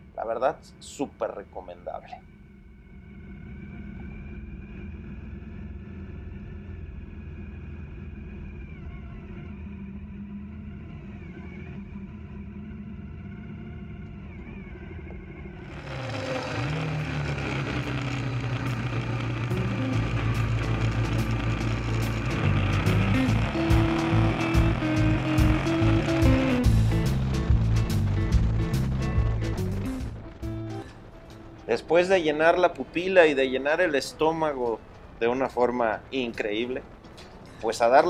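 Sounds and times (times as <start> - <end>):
motorcycle engine running: 15.6 - 31.7
rushing riding wind noise: 15.7 - 38.0.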